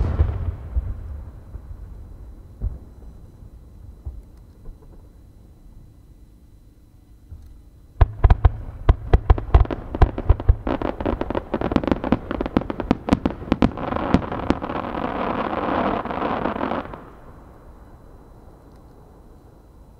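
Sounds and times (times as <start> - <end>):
firework crackling: 0.0 - 2.0, 8.0 - 17.4
firework bangs: 0.0 - 3.2, 8.0 - 17.2.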